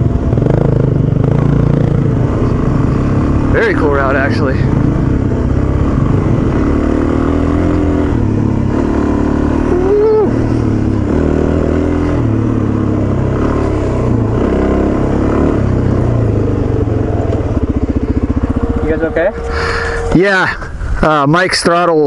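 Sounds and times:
motorcycle engine revving: 0.0s - 21.8s.

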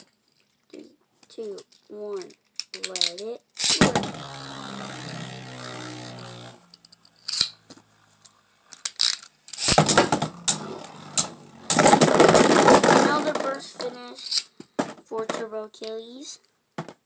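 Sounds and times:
spinning tops clattering together: 2.7s - 13.6s
spinning tops humming: 3.8s - 13.5s.

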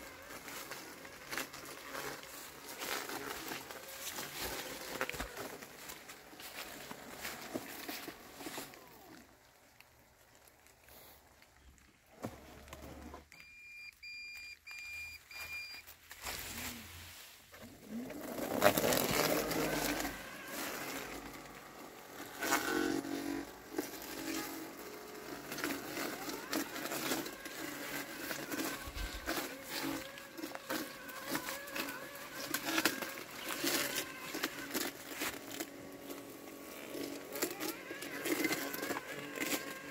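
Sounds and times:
lawn mower motor tone: 0.0s - 9.6s, 17.6s - 39.9s
leaves rustling and crackling: 0.0s - 12.8s, 15.2s - 39.9s
short high beeps: 13.4s - 15.8s.

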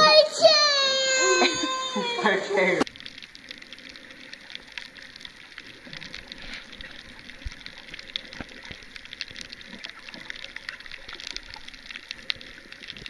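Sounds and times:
underwater clicking crackle: 2.8s - 13.0s.

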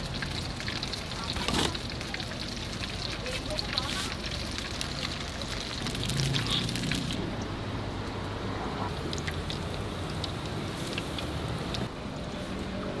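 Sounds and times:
oil sizzling in a wok: 0.0s - 7.2s.

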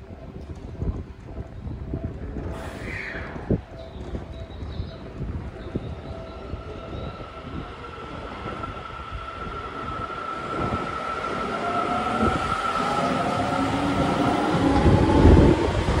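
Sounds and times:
rising tones: 5.7s - 16.0s.

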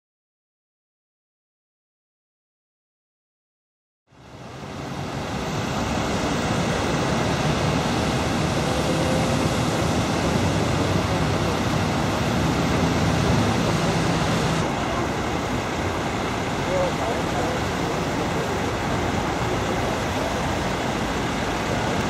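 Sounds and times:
motorway traffic: 4.2s - 22.0s
wind on microphone: 4.5s - 22.0s
diesel engine running: 5.2s - 22.0s.

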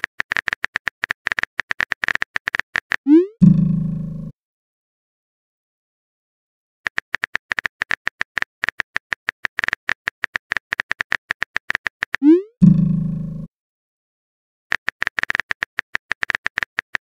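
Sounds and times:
keyboard typing clicks: 0.0s - 3.3s, 6.9s - 12.4s, 14.7s - 17.0s.

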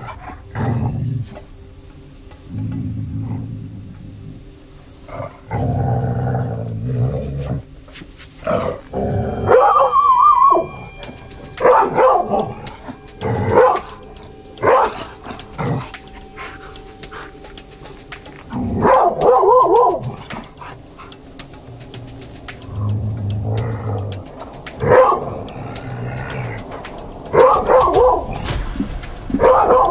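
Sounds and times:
dog barking: 9.5s - 10.0s, 11.6s - 12.5s, 13.5s - 13.9s, 14.6s - 15.0s, 18.8s - 20.2s, 24.8s - 25.4s, 27.3s - 28.4s, 29.4s - 29.9s.

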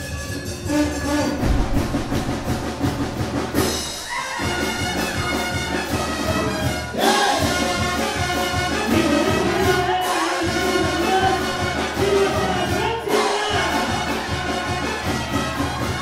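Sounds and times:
brass band music: 0.0s - 16.0s.

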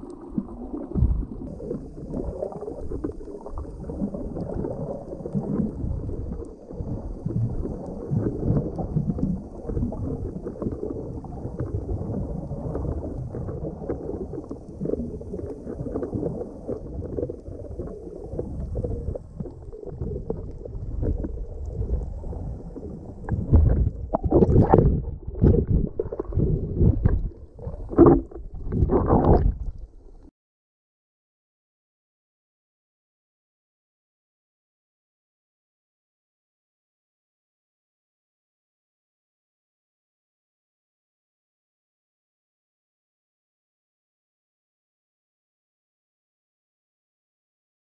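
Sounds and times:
underwater rumble and gurgling: 0.0s - 30.3s.

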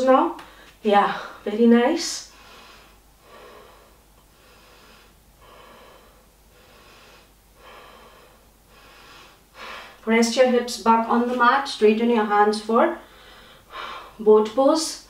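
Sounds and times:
person breathing heavily: 2.3s - 10.0s, 13.0s - 14.2s.

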